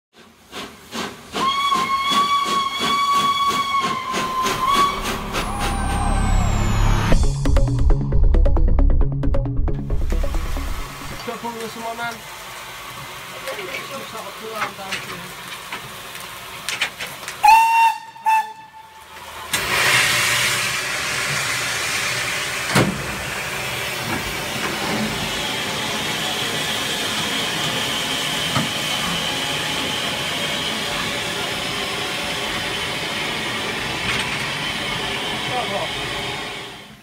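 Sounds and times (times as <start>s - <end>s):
steady steam hiss: 0.2s - 5.5s, 11.2s - 37.0s
steam locomotive whistle blasts: 1.3s - 7.1s, 17.4s - 20.3s.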